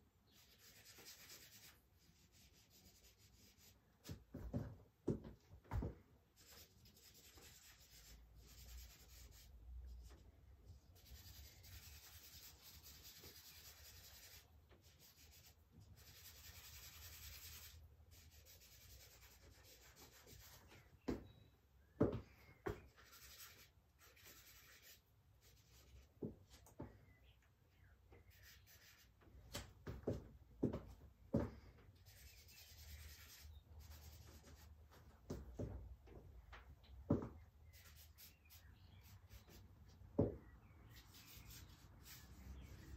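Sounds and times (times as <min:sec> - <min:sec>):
charcoal scratching on paper: 0:00.3 - 0:03.8, 0:06.4 - 0:09.5, 0:11.0 - 0:20.7, 0:22.9 - 0:26.1, 0:28.3 - 0:29.1, 0:32.0 - 0:34.7, 0:37.6 - 0:39.6, 0:40.9 - 0:42.9.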